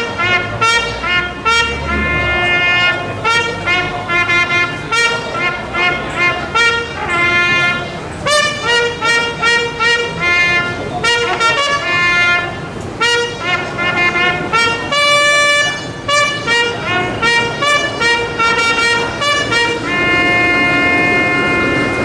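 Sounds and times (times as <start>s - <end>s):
bugle call: 0.0s - 22.0s.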